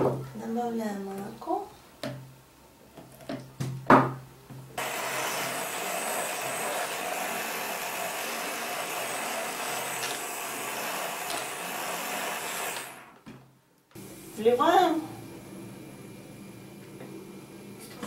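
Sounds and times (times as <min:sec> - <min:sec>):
immersion blender whisking: 0:04.8 - 0:13.2.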